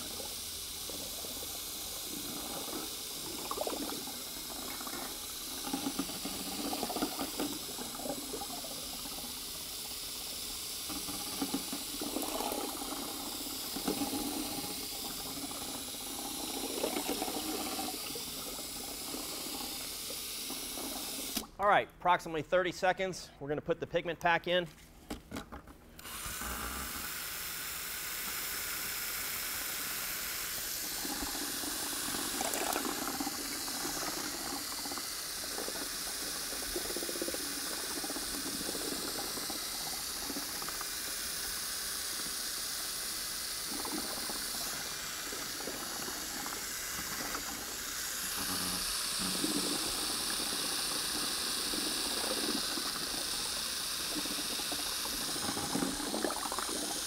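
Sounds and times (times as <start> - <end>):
paddle churning liquid: 0.9 - 9.4, 10.9 - 19.9, 30.9 - 40.9, 43.6 - 57.0
cordless drill running: 26.0 - 27.8.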